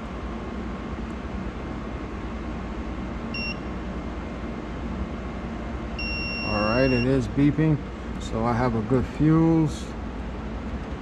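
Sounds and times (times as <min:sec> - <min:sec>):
short beep: 0:06.0 - 0:07.1.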